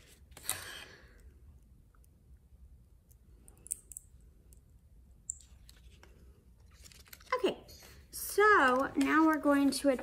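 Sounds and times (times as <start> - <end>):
paper rustling: 5.6 - 7.5, 8.2 - 10.0.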